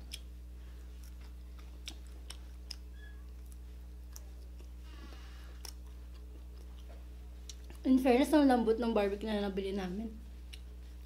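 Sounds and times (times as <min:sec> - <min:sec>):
mouth chewing and smacking: 0:00.0 - 0:07.8, 0:10.4 - 0:11.0.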